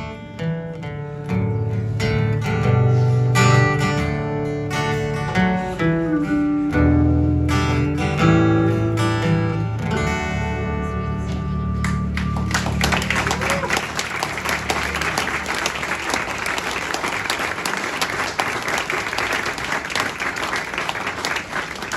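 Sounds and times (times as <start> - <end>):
audience applause: 11.8 - 21.9.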